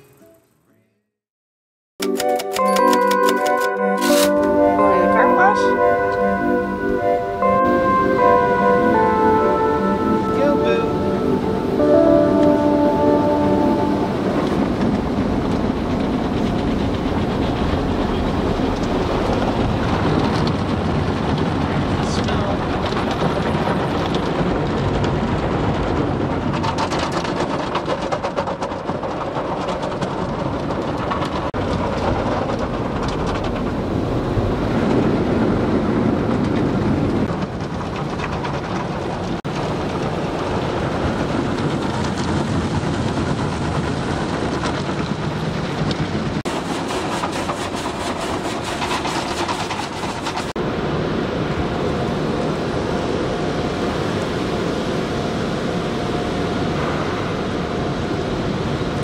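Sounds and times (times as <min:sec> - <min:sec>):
vehicle road noise rumble: 0:11.0 - 0:48.4.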